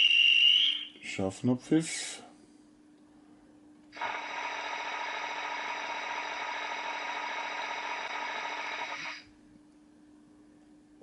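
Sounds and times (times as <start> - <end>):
rattling hiss of compressed air: 4.0 - 9.2.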